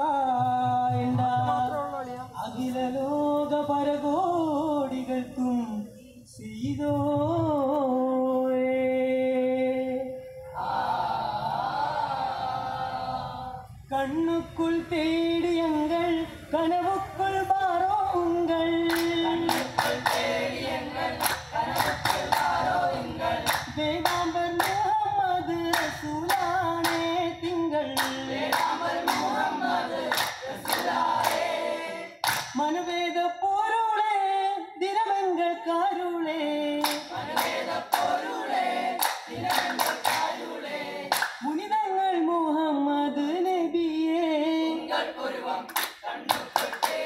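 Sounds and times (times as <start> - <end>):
men singing in unison: 0.0 - 47.0
sharp hand claps: 18.8 - 20.5, 21.2 - 22.7, 23.4 - 25.0, 25.6 - 27.2, 27.9 - 29.4, 30.1 - 31.5, 32.2 - 32.6, 36.8 - 38.3, 39.0 - 41.5, 45.7 - 47.0.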